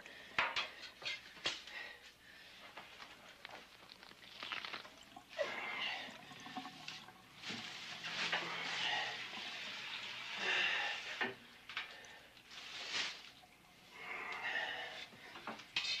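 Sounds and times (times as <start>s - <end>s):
wet splashing and sloshing: 3.0s - 9.9s.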